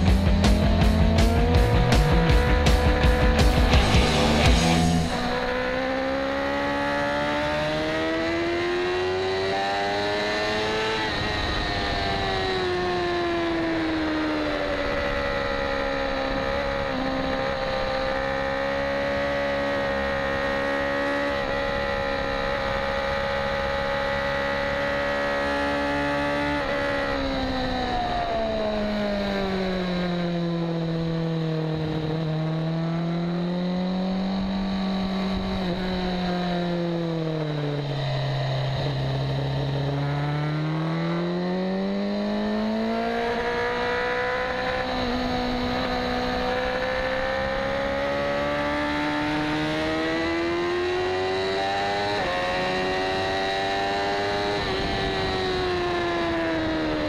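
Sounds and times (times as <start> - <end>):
rush of noise: 0.0 - 6.0
motorcycle engine at high revs: 0.0 - 57.0.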